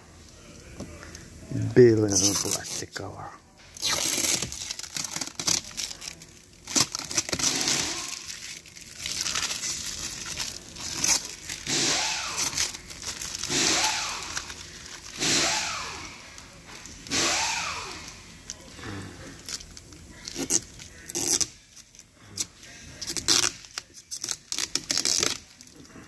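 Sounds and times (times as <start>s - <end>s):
plastic film peeling and crackling: 1.8s - 3.1s, 3.7s - 17.2s, 17.8s - 26.0s
plastic film squeaks: 2.0s - 2.9s, 3.7s - 17.2s, 19.5s - 26.0s.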